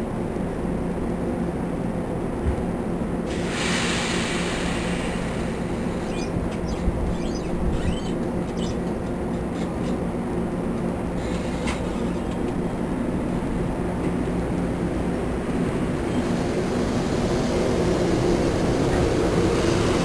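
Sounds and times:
train hum: 0:00.0 - 0:20.0
burst of hiss: 0:03.3 - 0:06.1
wheels squealing: 0:05.9 - 0:10.0.

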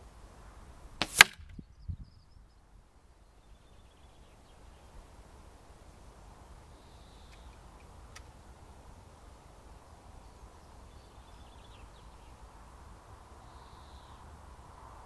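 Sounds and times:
air rifle shot crack: 0:01.0 - 0:01.5.

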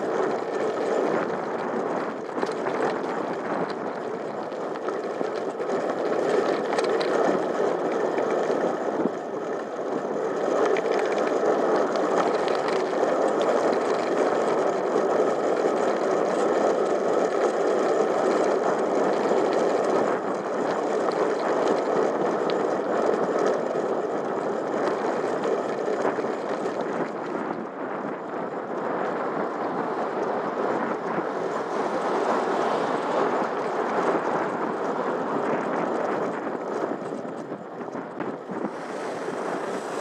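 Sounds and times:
bicycle tyre noise on tarmac: 0:00.0 - 0:40.0
bike rattles and clicks: 0:00.0 - 0:40.0
wind on microphone: 0:00.0 - 0:40.0.

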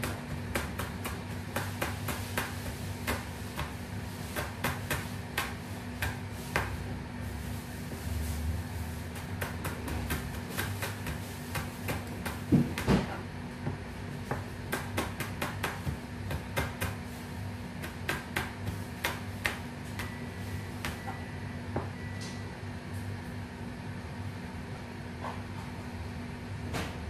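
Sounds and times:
knife chopping on cutting board: 0:00.0 - 0:06.9, 0:09.1 - 0:17.1, 0:17.7 - 0:20.2, 0:20.8 - 0:21.9
steady low hum: 0:00.0 - 0:27.0.

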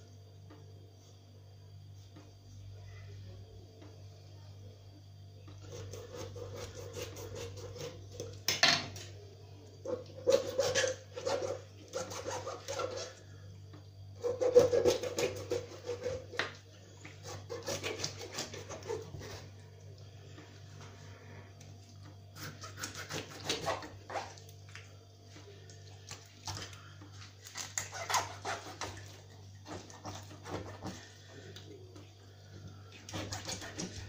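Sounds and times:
steady low hum: 0:00.0 - 0:34.0
knife scraping fish scales: 0:10.2 - 0:13.2, 0:22.4 - 0:24.3, 0:27.4 - 0:31.1.

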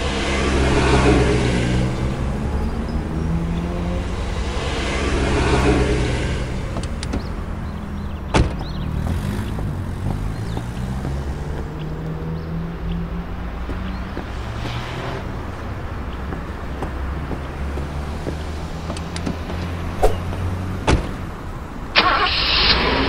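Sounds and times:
cars passing: 0:00.0 - 0:23.0
vehicle engine idling: 0:00.0 - 0:23.0
car door slam: 0:08.3 - 0:08.8, 0:20.8 - 0:21.2.

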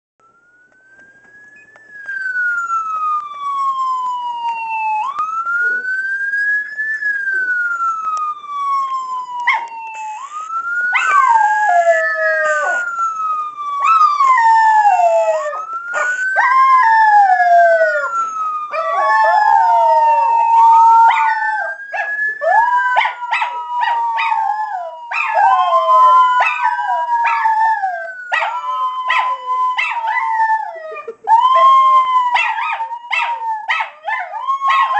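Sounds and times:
wailing siren: 0:00.2 - 0:34.9
dogs howling: 0:13.8 - 0:34.9.

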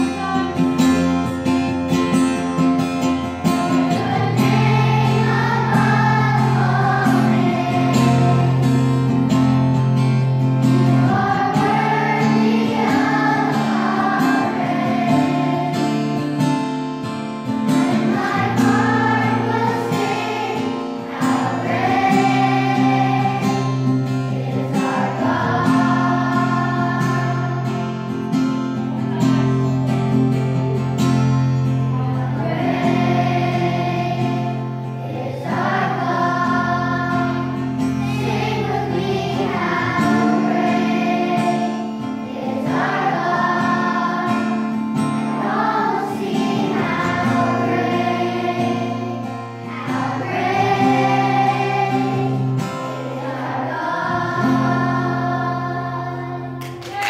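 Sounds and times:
children's choir singing: 0:00.0 - 0:57.0.

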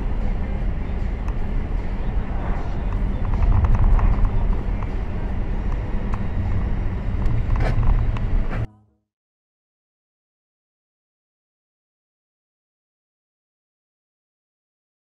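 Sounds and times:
engine and road rumble in car: 0:00.0 - 0:08.7.

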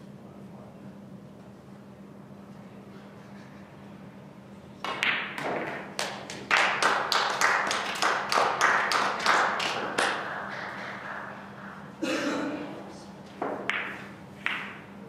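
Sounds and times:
hand clapping: 0:04.8 - 0:11.9.

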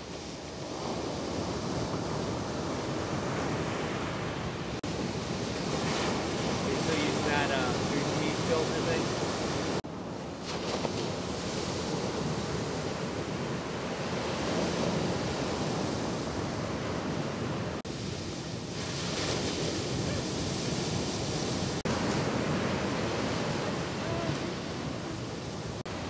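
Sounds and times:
ocean waves breaking: 0:00.0 - 0:26.0.

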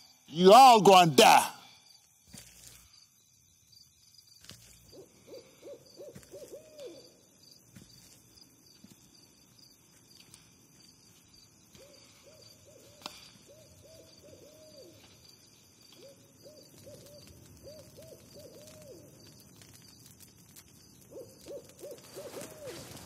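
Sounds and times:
owl hooting: 0:04.9 - 0:07.2, 0:11.8 - 0:15.1, 0:15.9 - 0:19.1, 0:21.1 - 0:23.0.

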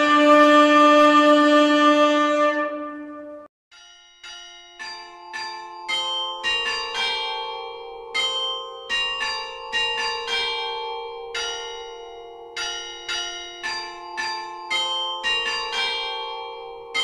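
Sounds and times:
carillon bells playing a tune: 0:03.7 - 0:17.0.

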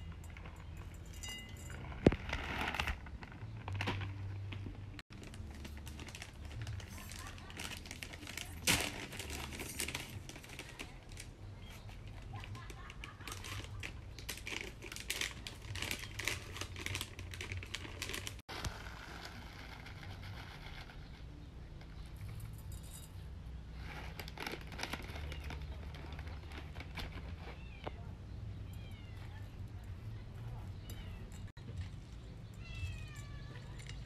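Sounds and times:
foil pouch crinkling and tearing: 0:02.0 - 0:21.1, 0:23.8 - 0:27.6.

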